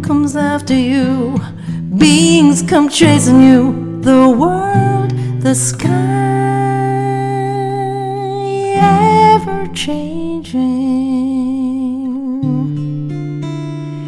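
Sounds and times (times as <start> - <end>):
acoustic guitar chords: 0.0 - 14.0
woman singing held note: 8.6 - 11.9.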